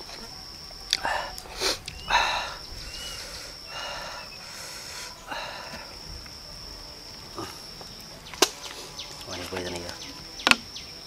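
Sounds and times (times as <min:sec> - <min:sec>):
steady high-pitched whine: 0:00.0 - 0:11.0
man gasping and blowing breaths: 0:00.9 - 0:06.0.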